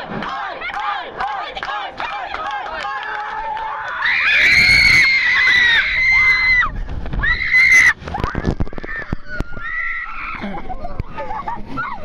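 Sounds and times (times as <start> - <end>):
riders screaming: 4.0 - 8.0.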